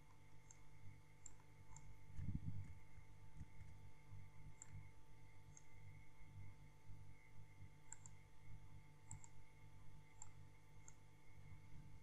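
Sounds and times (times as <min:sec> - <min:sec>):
computer mouse clicks: 0:00.0 - 0:02.8, 0:04.5 - 0:04.9, 0:05.5 - 0:05.8, 0:07.8 - 0:08.2, 0:09.0 - 0:09.4, 0:10.1 - 0:11.1
low steady hum: 0:00.0 - 0:12.0.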